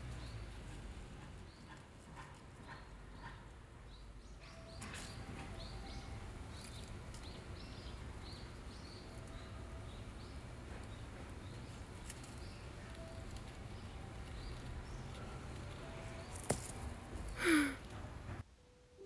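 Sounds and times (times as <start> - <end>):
low outdoor hum: 0.0 - 19.0
small bird chirping: 2.6 - 16.4.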